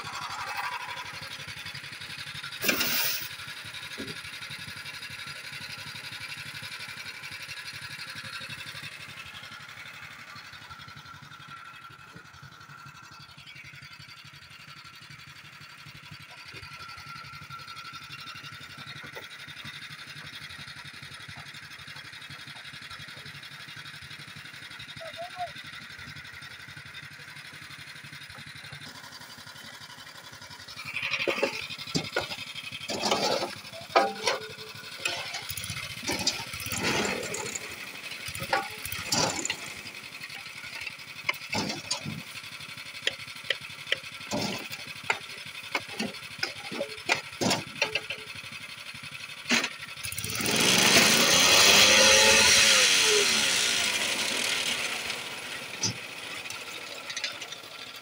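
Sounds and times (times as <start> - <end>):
machine engine and vibrator running: 0.0 - 58.0
shovel scraping: 2.6 - 3.4, 30.8 - 37.8.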